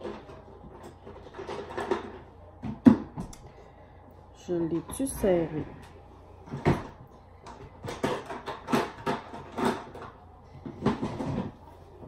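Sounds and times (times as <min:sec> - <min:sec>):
small items clacking and rustling: 0:00.0 - 0:02.4.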